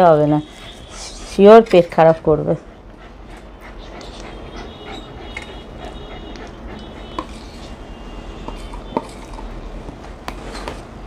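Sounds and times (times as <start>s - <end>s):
metal spoon scraping gravy: 3.9s - 4.4s, 6.8s - 9.5s.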